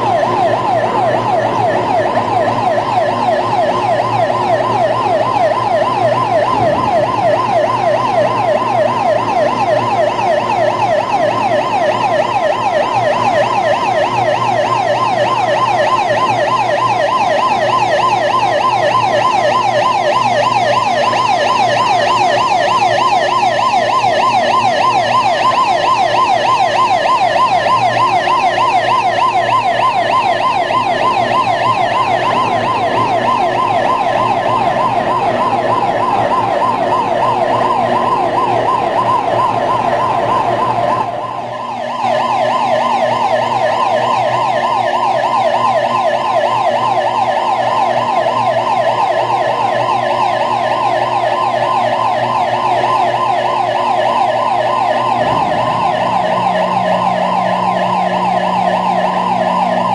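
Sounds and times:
electronic warning alarm warbling: 0:00.0 - 0:59.9
low machine hum: 0:30.3 - 0:41.5, 0:54.7 - 0:59.9.

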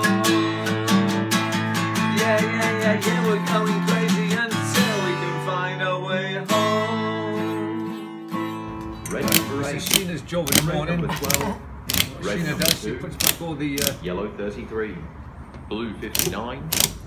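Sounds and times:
man singing: 0:00.0 - 0:08.1, 0:09.1 - 0:11.4
acoustic guitar strumming: 0:00.0 - 0:12.4.

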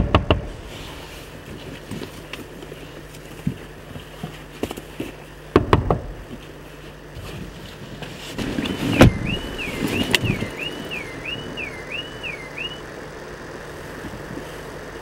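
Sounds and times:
heavy thumps: 0:00.0 - 0:01.1, 0:05.5 - 0:06.4, 0:08.4 - 0:10.5
car alarm siren warbling: 0:08.4 - 0:13.1.

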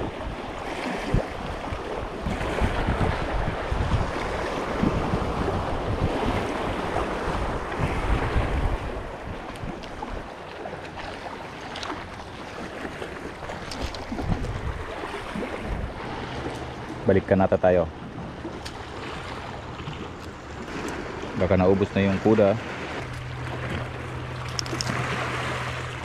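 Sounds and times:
wind buffeting microphone: 0:00.0 - 0:10.3, 0:13.2 - 0:17.4
sea waves washing: 0:00.0 - 0:26.0.

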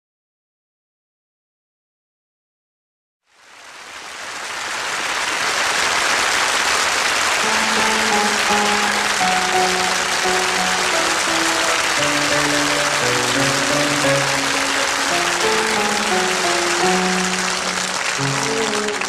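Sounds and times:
audience applause: 0:03.6 - 0:19.0
song instrumental introduction: 0:07.4 - 0:19.0.

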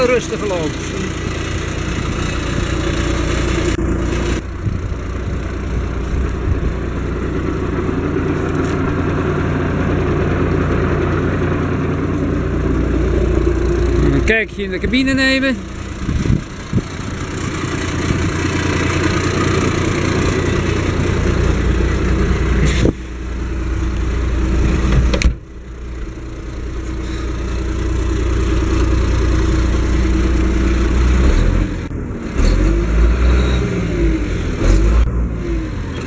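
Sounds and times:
tractor diesel engine idling: 0:00.0 - 0:32.2.

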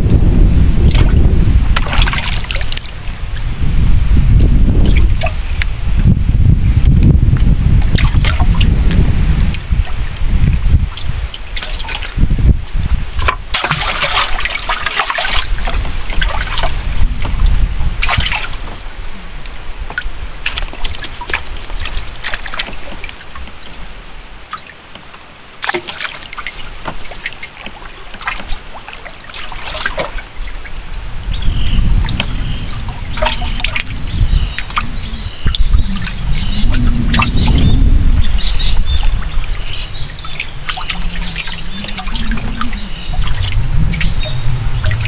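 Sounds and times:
low rumble: 0:00.0 - 0:11.4, 0:15.6 - 0:19.7, 0:30.7 - 0:45.0
water sloshing and trickling: 0:00.0 - 0:45.0
small water splashes: 0:00.7 - 0:03.6, 0:04.4 - 0:06.0, 0:07.3 - 0:45.0.

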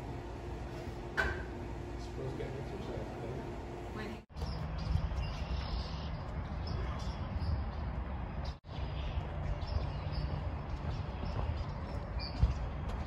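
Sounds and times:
low wind rumble: 0:00.0 - 0:13.0
small birds chirping: 0:04.3 - 0:13.0.

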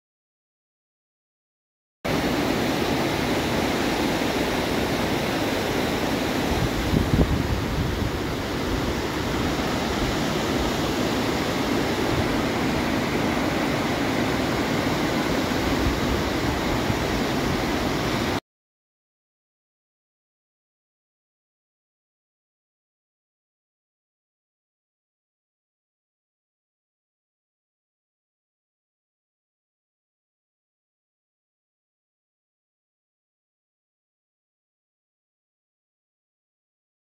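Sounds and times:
river rapids rushing: 0:02.1 - 0:18.4.

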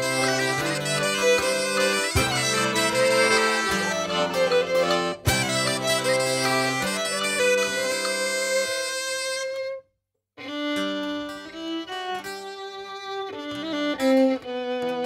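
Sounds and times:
bagpipe tune with drones: 0:00.0 - 0:09.6
fiddle tune: 0:00.0 - 0:15.0.

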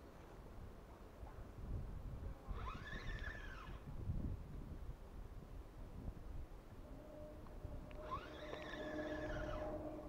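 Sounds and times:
fishing reel gears whining: 0:02.5 - 0:03.8, 0:07.9 - 0:09.8.

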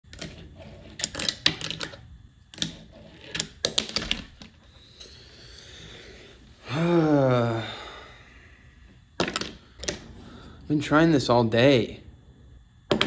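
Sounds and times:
person groaning: 0:06.6 - 0:08.4.

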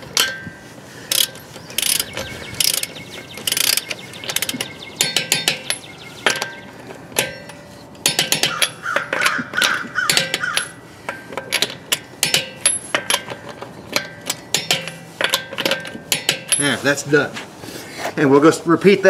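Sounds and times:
torque wrench ratcheting clicks: 0:01.1 - 0:06.5.

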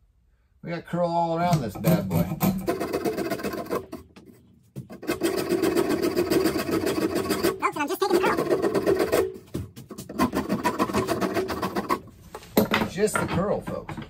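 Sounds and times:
file scraping wooden handle: 0:01.7 - 0:07.6, 0:08.2 - 0:12.6.

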